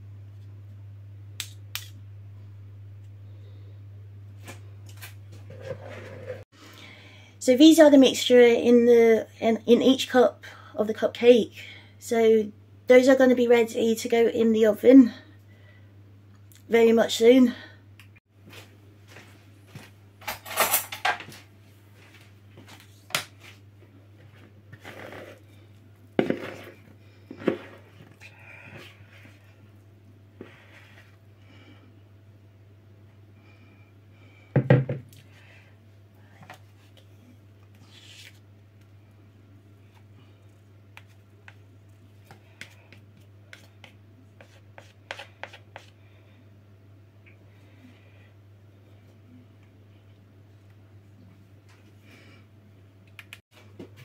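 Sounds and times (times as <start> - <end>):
steady low hum: 0.0 - 54.0
utensil scraping plastic bowl: 5.5 - 6.4, 24.8 - 25.4, 26.2 - 28.0.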